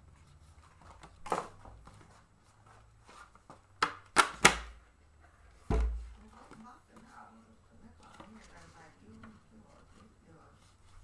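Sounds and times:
hand slaps: 3.8s - 4.8s.

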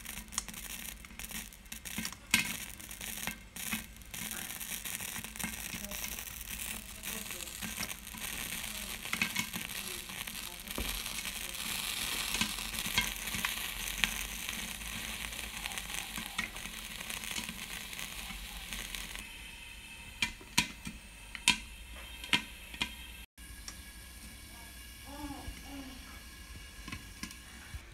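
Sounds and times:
popcorn popping: 0.0s - 19.3s, 20.0s - 27.8s
steady sizzle: 0.0s - 27.9s.

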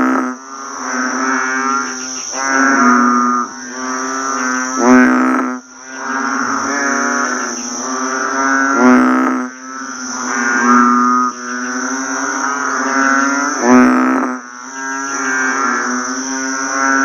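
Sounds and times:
bullfrog calling: 0.0s - 17.0s.

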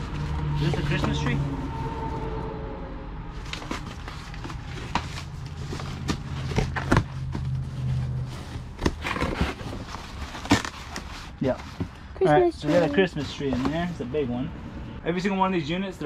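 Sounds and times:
cardboard rustling: 3.4s - 14.1s.

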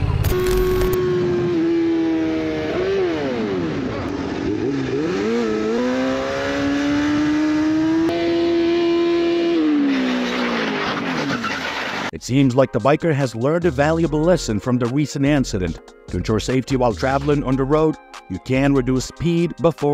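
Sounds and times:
motorcycle engine running hard: 0.0s - 11.4s.

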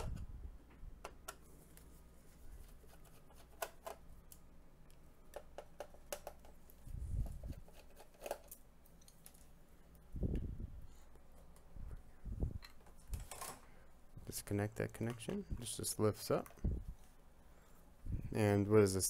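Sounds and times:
small parts clicking and tapping: 2.9s - 6.7s.

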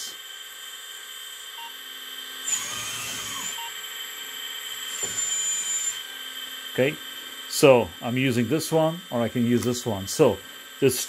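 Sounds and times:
electric track motors under load: 0.0s - 11.0s
hydraulic pump whine: 0.0s - 11.0s.

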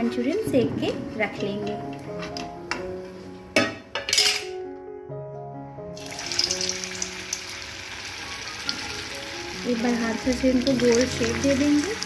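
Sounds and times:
background music: 0.0s - 12.0s
oil sizzling: 6.0s - 12.0s.

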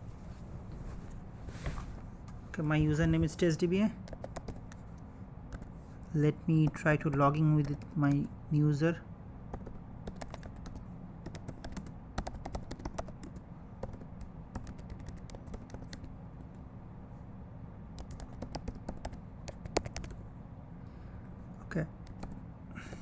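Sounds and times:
steady low hum: 0.0s - 23.0s
typing on computer keyboard: 4.0s - 4.8s, 9.5s - 16.1s, 18.0s - 20.2s, 22.0s - 22.4s.

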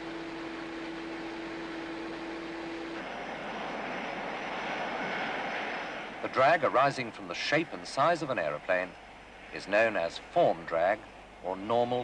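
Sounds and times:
jet engines whining: 0.0s - 12.0s
wind tunnel hum and rushing air: 2.5s - 9.0s.

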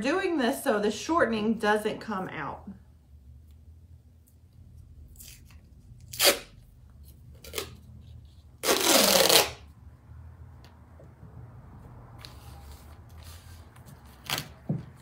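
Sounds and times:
duct tape ripping off roll: 5.2s - 6.6s, 7.3s - 7.8s, 8.6s - 9.7s.

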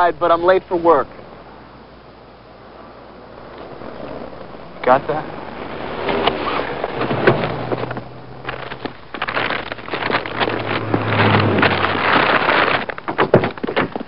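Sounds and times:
low engine hum: 1.0s - 14.0s
knocks and rustles: 6.0s - 14.0s.

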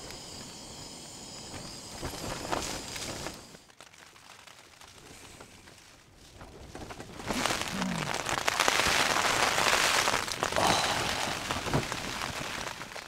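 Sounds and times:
gas stove hissing: 0.0s - 3.6s, 10.3s - 13.0s
faint rain pattering on tent: 1.6s - 13.0s.

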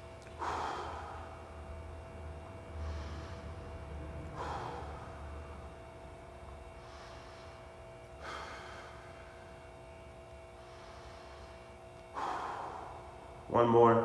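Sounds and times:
man breathing deeply: 0.0s - 13.5s
faint steady hum: 0.0s - 14.0s.

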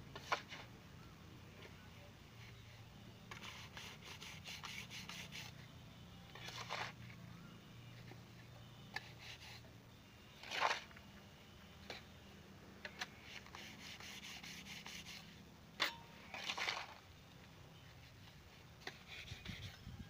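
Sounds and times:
trowel scraping wet mortar: 6.3s - 7.0s, 10.4s - 10.9s, 12.9s - 17.0s.

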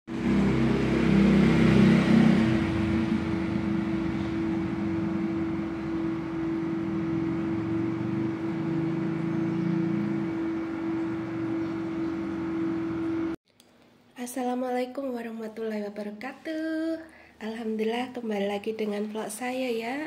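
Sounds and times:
low drone: 0.1s - 13.4s
motor-like hum: 0.1s - 13.4s.

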